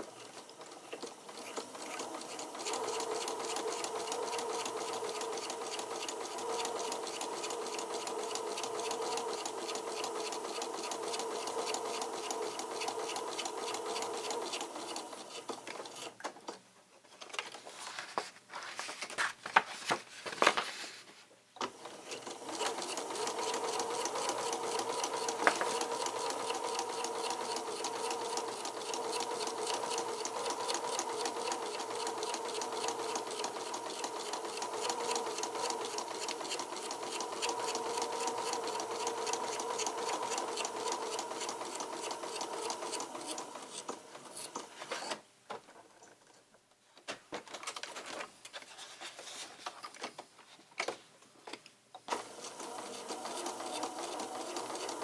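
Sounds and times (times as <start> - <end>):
sewing machine stitching: 0.0 - 16.2, 21.6 - 45.2, 52.1 - 55.0.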